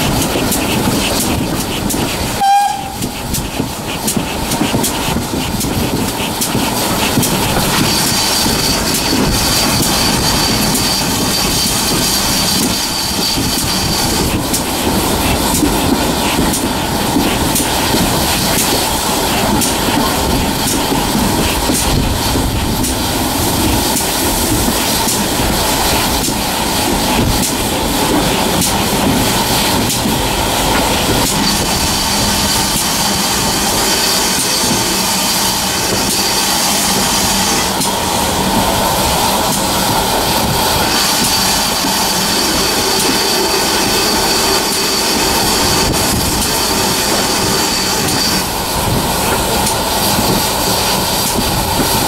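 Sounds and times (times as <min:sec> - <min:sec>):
train wheels rumbling on rails: 0:00.0 - 0:52.0
high squeal: 0:07.6 - 0:14.3, 0:40.8 - 0:48.6.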